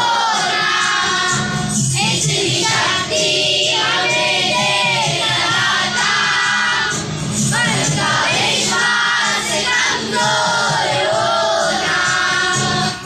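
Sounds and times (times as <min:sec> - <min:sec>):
children singing in unison: 0:00.0 - 0:13.0.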